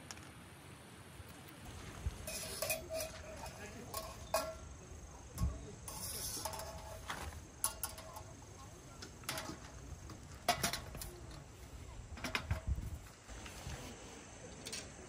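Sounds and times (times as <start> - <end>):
knocks and clinks of camping gear: 2.2 - 5.6, 6.3 - 11.4, 12.1 - 12.9.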